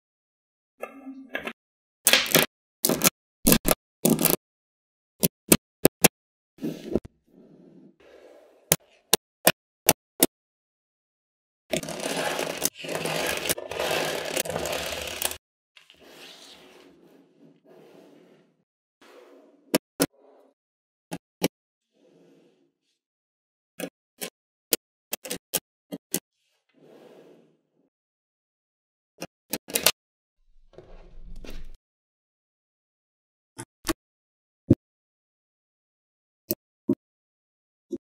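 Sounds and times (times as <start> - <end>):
balls rattling and scraping: 11.7 - 18.5.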